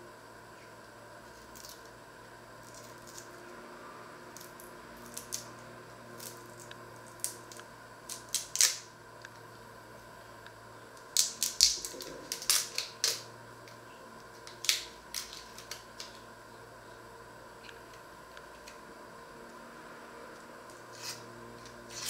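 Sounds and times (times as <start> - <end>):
onion skins crackling: 1.2 - 2.0, 2.6 - 3.4, 4.3 - 8.9, 11.0 - 16.3.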